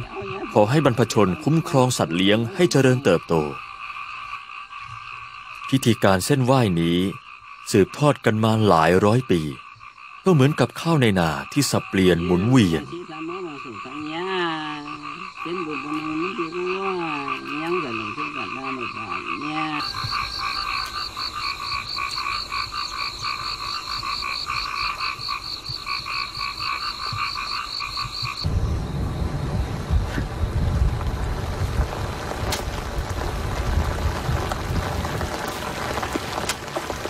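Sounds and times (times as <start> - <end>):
heavy rain: 0.0 - 3.9, 28.5 - 37.0
frogs calling in trills: 0.0 - 28.5.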